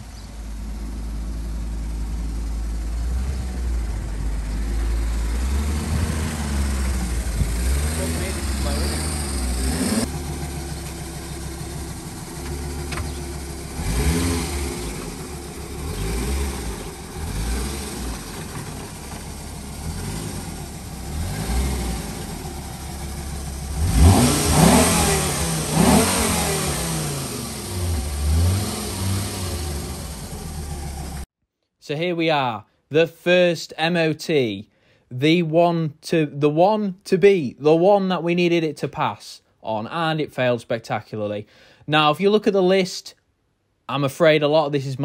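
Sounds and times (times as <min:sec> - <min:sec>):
car engine idling and revving: 0:00.0 - 0:31.3.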